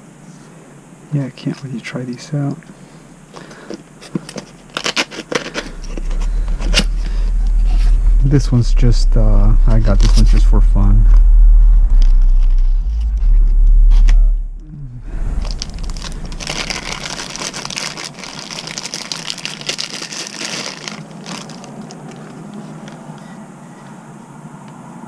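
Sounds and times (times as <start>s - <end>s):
plastic bag crinkling: 3.3s - 7.8s, 15.3s - 23.2s
loud low rumble: 5.5s - 19.6s.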